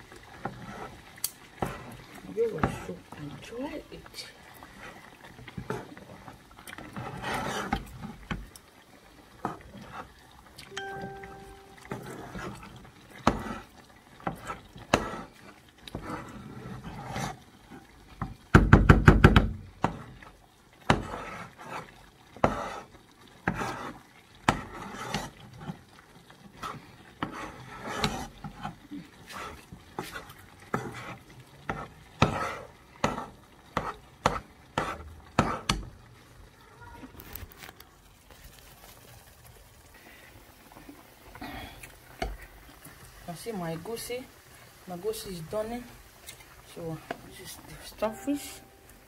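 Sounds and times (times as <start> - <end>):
frying in oil: 0.0 - 49.0.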